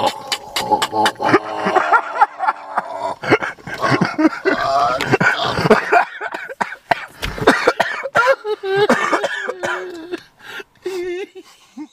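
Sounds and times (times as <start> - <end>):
people crying out: 3.7 - 5.8.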